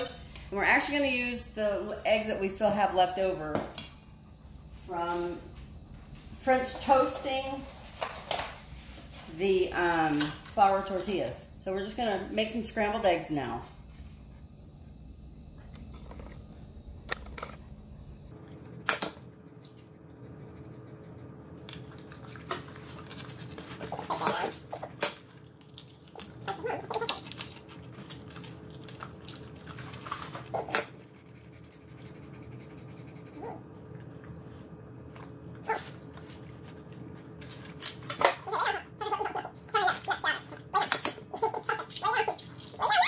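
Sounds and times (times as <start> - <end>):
dogs vocalizing: 29.5 - 34.1, 38.2 - 43.0.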